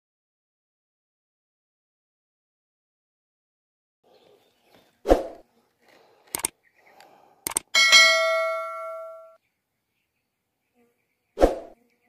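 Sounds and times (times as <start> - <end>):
short clicks: 6.3 - 6.6, 7.4 - 7.7
bell ding: 7.8 - 9.4.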